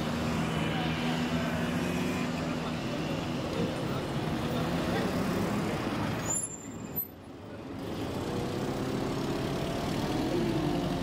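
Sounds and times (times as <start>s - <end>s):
road traffic passing: 0.0s - 11.0s.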